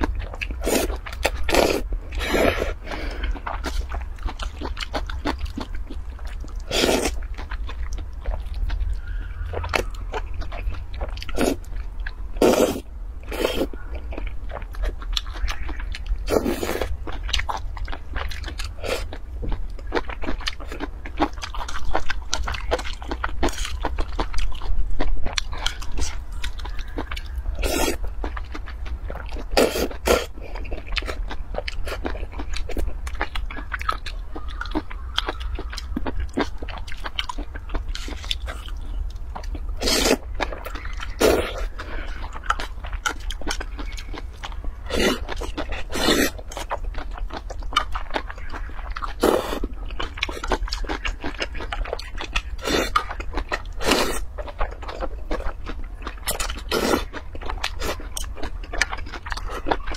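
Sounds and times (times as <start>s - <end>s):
person chewing and smacking: 0.0s - 59.9s
slurping noodles: 12.4s - 13.7s, 39.8s - 40.2s, 44.9s - 46.4s.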